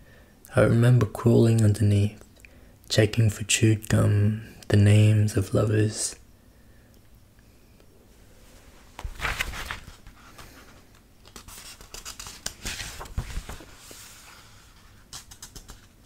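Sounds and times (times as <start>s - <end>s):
book pages rustling: 8.6s - 16.0s.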